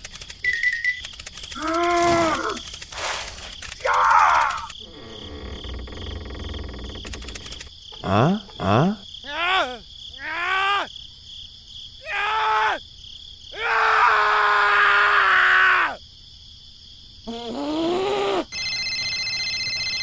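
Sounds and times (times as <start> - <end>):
insect-like chirring: 0.0 - 10.2
cartoon character voice effects: 8.0 - 9.4.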